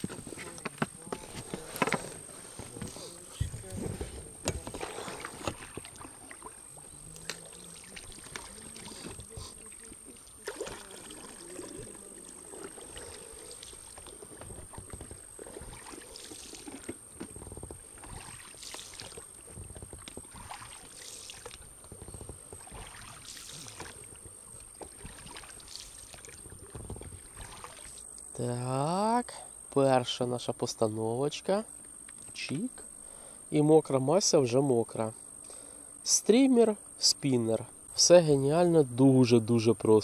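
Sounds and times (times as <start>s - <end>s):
oars splashing in water: 0.0s - 28.1s.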